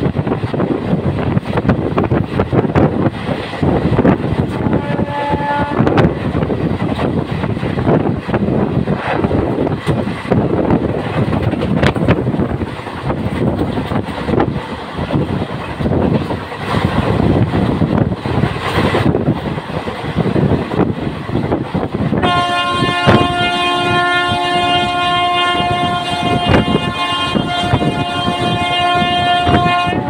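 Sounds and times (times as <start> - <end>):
train running at speed: 0.0 - 30.0
locomotive horn: 4.5 - 6.2, 22.2 - 30.0.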